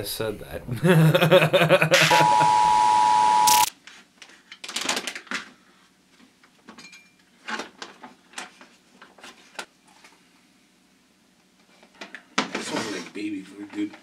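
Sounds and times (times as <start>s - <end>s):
loud static: 1.9s - 3.7s
test-card beep: 2.0s - 3.7s.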